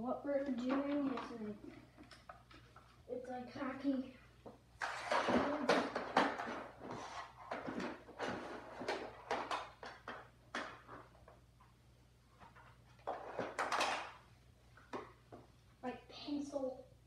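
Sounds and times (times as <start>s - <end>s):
objects knocking on hard floor: 4.8s - 11.1s.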